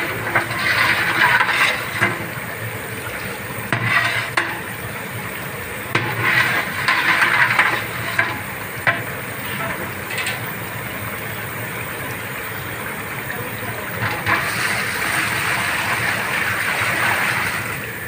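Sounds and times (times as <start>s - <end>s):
metal ladle scraping a pot: 0.0s - 2.4s, 3.7s - 4.6s, 6.0s - 10.5s.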